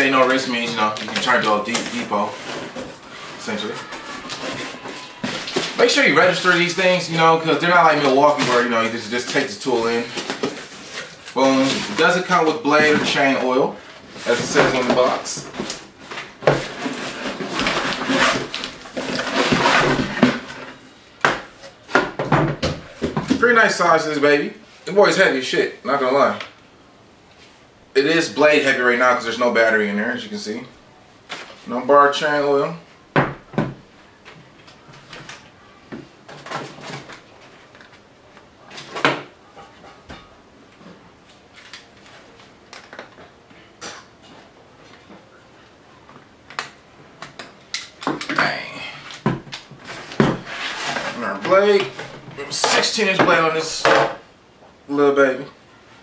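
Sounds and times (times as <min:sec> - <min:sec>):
cardboard box rustling and scraping: 0:16.5 - 0:20.8, 0:49.8 - 0:52.2.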